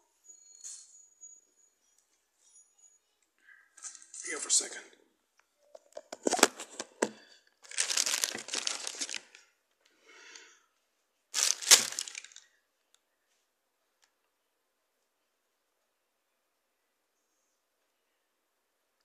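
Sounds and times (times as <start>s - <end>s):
plastic bag crinkling: 5.8s - 9.4s, 11.3s - 12.5s.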